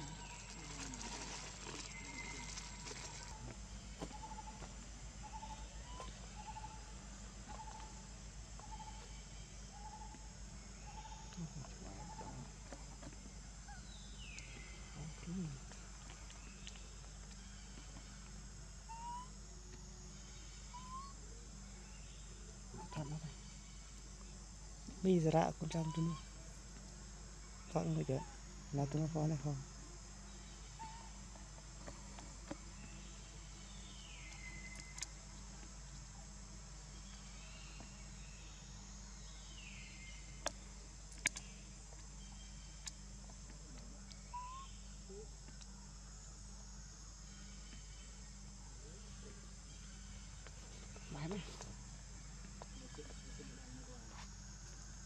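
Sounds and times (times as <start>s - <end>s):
faint falling whistle-like calls: 0.0s - 4.5s, 20.2s - 21.2s, 44.1s - 45.3s
high insect drone: 0.0s - 55.0s.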